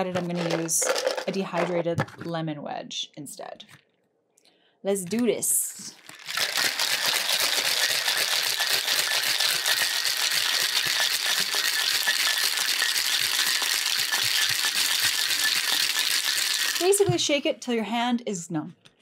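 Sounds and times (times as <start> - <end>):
cocktail shaker rattling: 0.0 - 1.8, 5.9 - 17.1.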